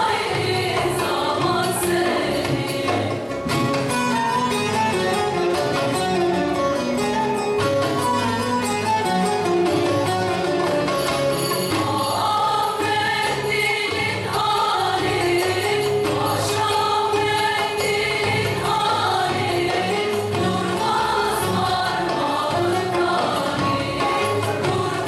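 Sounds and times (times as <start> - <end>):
women's choir singing folk song: 0.0 - 3.5, 11.7 - 25.0.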